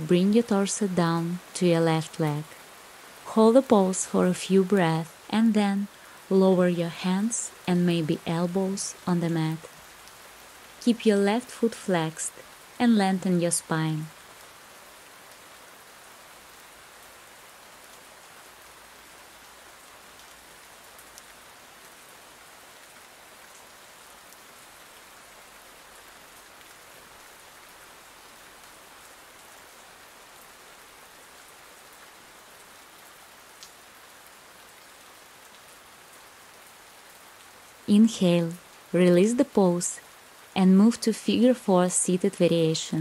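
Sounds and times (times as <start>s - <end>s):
steady rain falling: 0.0s - 43.0s
faint ticks: 33.6s - 33.8s.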